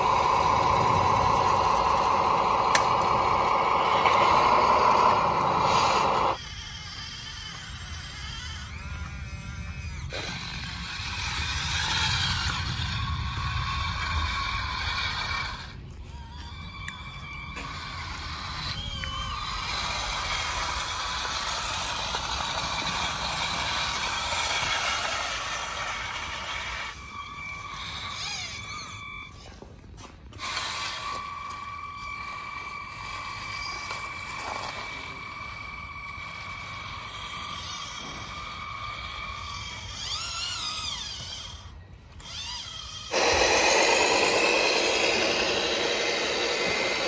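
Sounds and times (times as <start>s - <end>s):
low rumble: 0.0s - 6.4s
electric motors whirring: 0.0s - 47.0s.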